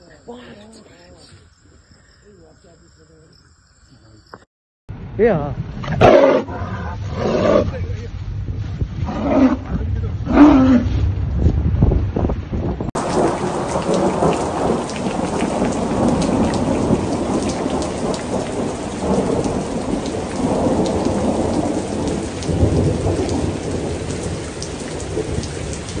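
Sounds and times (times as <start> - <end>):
thunder rumbling: 6.8 - 26.0
heavy rain: 12.2 - 26.0.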